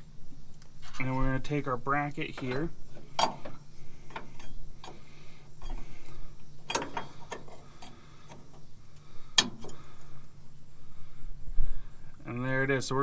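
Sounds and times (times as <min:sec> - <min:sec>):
low steady hum: 0:00.0 - 0:13.0
metal clicks and knocks: 0:02.2 - 0:05.9, 0:06.6 - 0:08.6, 0:09.4 - 0:09.8.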